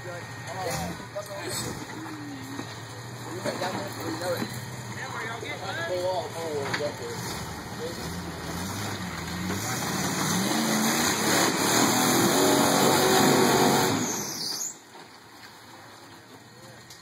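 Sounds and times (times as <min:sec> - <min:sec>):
engine revving under load: 0:00.0 - 0:02.0, 0:06.8 - 0:14.5.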